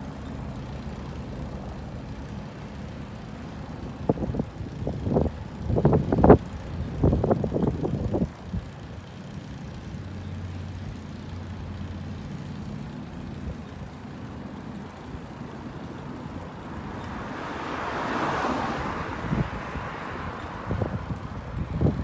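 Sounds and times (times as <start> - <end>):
vehicle engine humming: 0.0 - 22.0
vehicle passing: 10.6 - 22.0.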